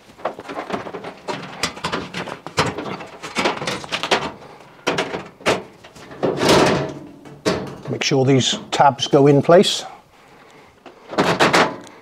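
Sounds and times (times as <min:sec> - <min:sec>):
sheet-metal knocks and rattles: 0:00.2 - 0:08.8, 0:11.1 - 0:11.8.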